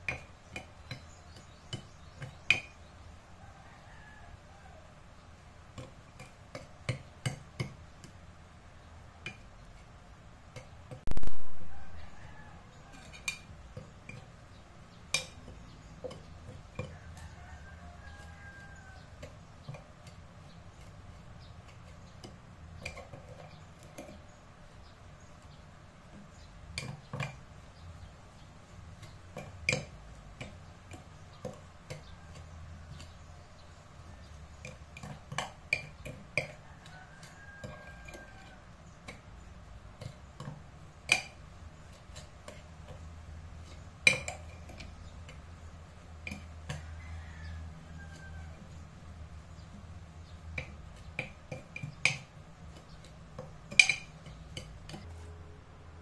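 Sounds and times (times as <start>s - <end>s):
low steady hum: 0.0s - 56.0s
spoon clinking against ceramic dish: 44.0s - 45.4s.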